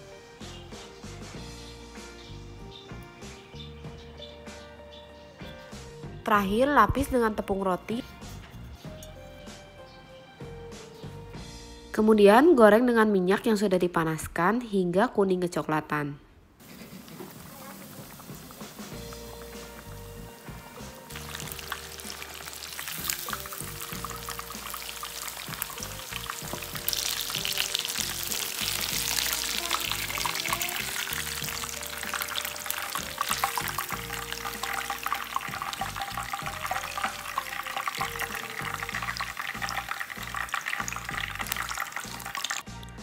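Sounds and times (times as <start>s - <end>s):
soft background music: 0.0s - 15.8s, 17.8s - 43.0s
chicken deep-frying in oil: 16.6s - 43.0s.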